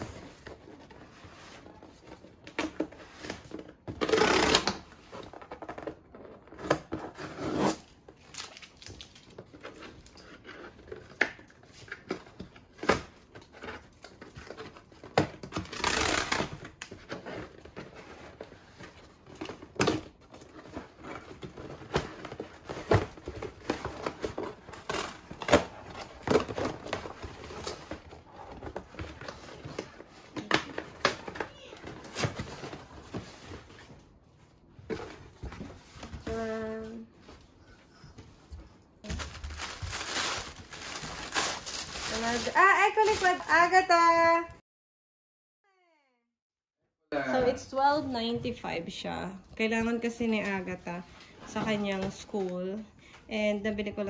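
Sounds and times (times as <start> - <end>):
packing tape ripping: 15.4 - 16.9.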